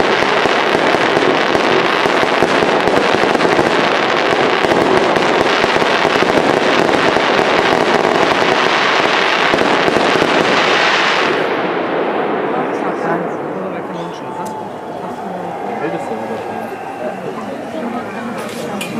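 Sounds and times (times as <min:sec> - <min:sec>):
fireworks crackling: 0:00.0 - 0:18.9.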